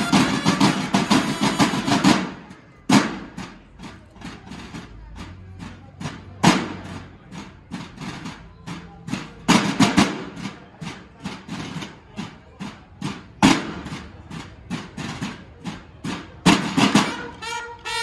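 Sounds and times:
marching snare drums: 0:00.0 - 0:18.0.

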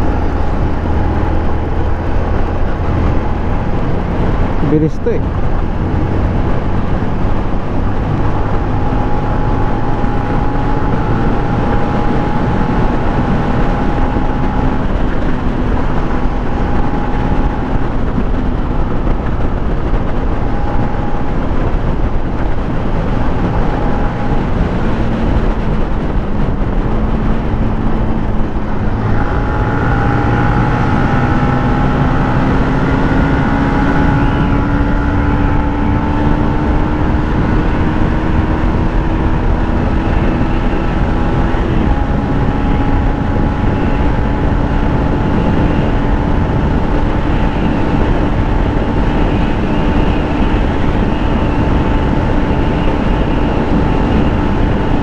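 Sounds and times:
motorcycle engine drone: 0:00.0 - 0:55.0
wind rush on microphone: 0:00.0 - 0:55.0.

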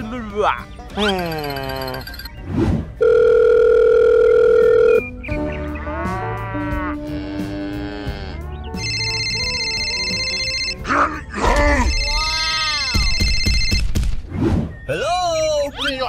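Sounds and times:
toy phone ringtone: 0:01.0 - 0:02.3, 0:03.0 - 0:05.0, 0:08.8 - 0:10.8, 0:12.9 - 0:13.8.

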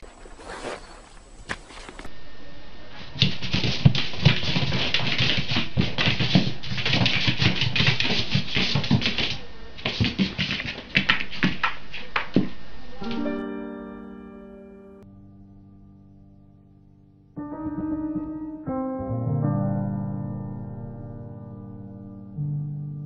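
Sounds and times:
pet claws clicking on hard floor: 0:03.2 - 0:12.6
soft piano music: 0:13.0 - 0:23.0.

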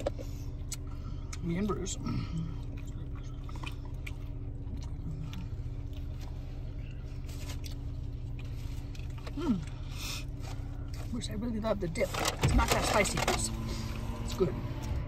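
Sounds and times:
car low hum: 0:00.0 - 0:15.0
person chewing food: 0:00.1 - 0:11.0.

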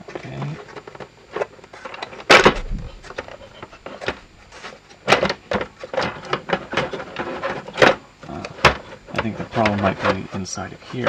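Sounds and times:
plastic parts clicking and knocking: 0:05.0 - 0:10.2.

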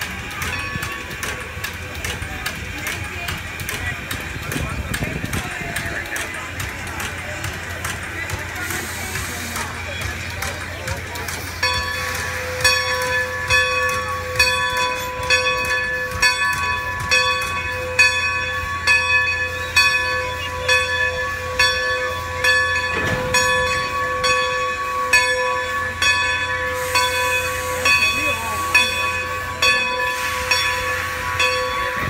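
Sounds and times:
steam locomotive bell ringing: 0:00.0 - 0:32.0
hiss of steam: 0:08.5 - 0:10.5, 0:26.6 - 0:32.0.

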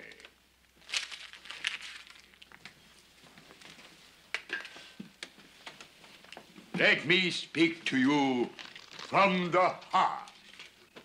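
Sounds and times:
paper crumpling: 0:00.8 - 0:03.8, 0:08.4 - 0:10.8.

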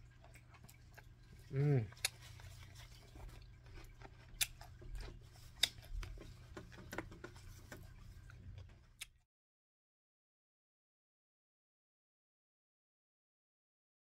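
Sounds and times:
low steady hum: 0:00.0 - 0:09.2
quiet chewing: 0:00.0 - 0:09.2.

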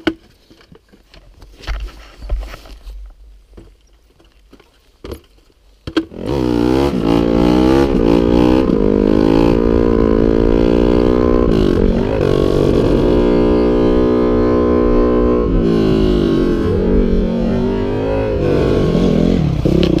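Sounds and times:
dirt bike engine accelerating: 0:06.1 - 0:20.0.

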